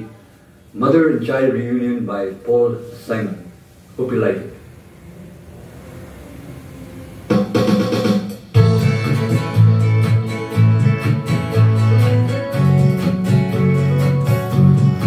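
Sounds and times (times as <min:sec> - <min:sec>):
acoustic guitar strumming: 0:07.3 - 0:15.0
held bass notes: 0:08.6 - 0:15.0.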